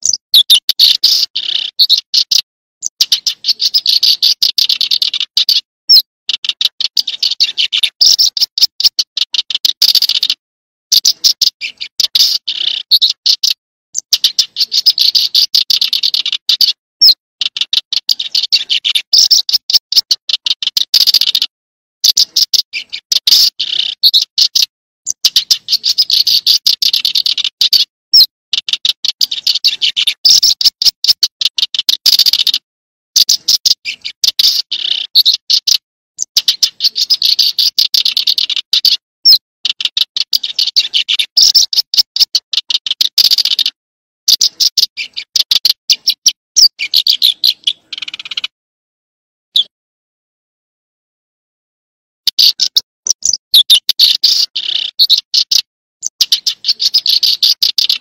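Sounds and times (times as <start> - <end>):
small songbird singing: 0.0 - 32.6, 33.2 - 48.5, 52.2 - 58.0.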